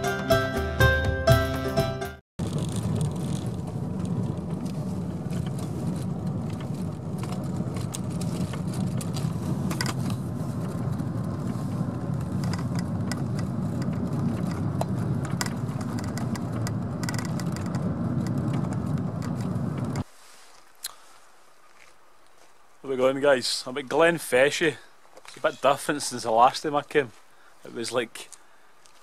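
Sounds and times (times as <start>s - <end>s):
car engine and tyre rumble: 2.4s - 22.9s
light clicks and rattles: 2.5s - 20.1s.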